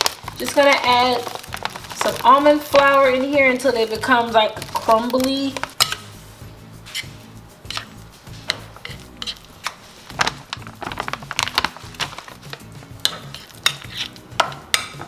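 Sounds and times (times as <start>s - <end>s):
quiet background music: 0.0s - 15.0s
spoon scraping glass bowl: 6.8s - 9.9s, 13.0s - 14.2s.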